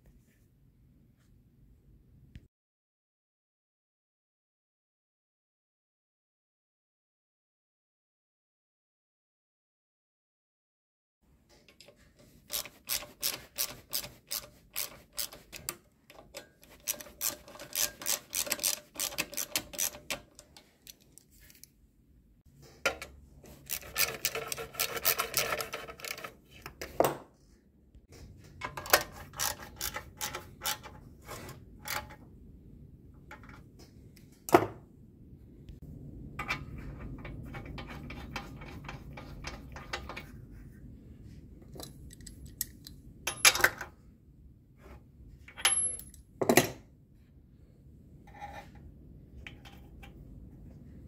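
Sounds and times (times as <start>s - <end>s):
ratcheting driver clicking: 12.5s - 21.0s
metal scraping and rattling: 22.9s - 26.5s.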